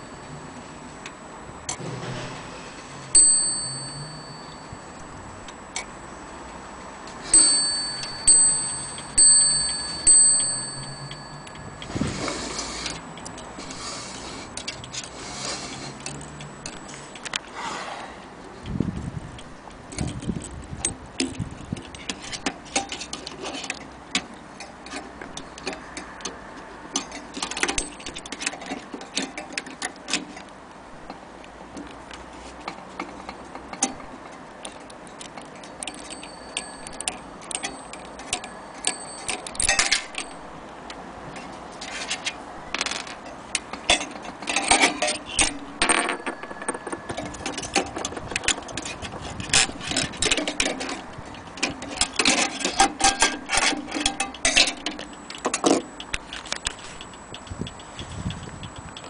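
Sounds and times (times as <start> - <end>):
clock pendulum clicks and knocks: 7.3 - 11.9, 19.7 - 30.4, 33.0 - 40.4, 42.8 - 59.0.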